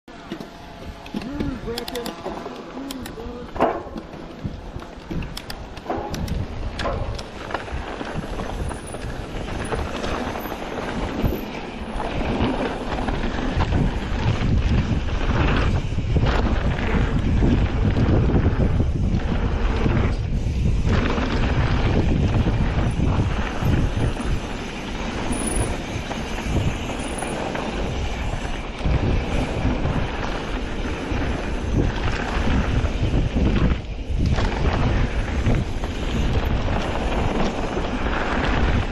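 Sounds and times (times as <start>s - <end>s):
bike tyres rattling on dirt: 0.1s - 38.9s
wind buffeting microphone: 3.0s - 38.9s.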